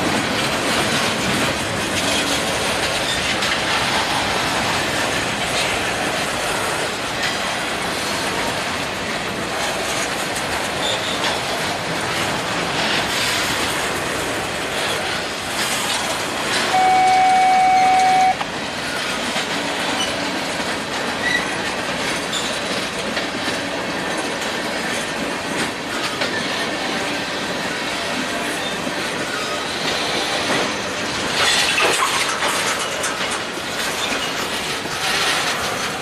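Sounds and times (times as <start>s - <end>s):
train wheels rumbling on rails: 0.0s - 36.0s
high-pitched tone: 16.7s - 18.4s.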